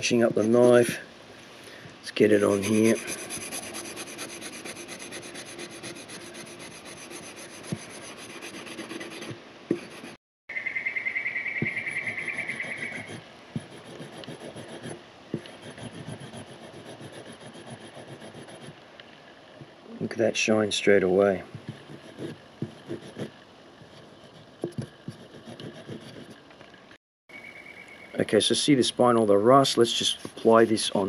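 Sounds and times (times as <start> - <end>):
rust eraser rasping on steel blade: 2.4 - 10.2.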